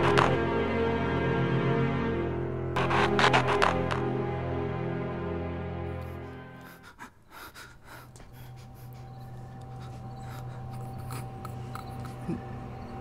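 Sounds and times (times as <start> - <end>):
dark film score drone: 0.0 - 13.0
low hum: 7.3 - 13.0.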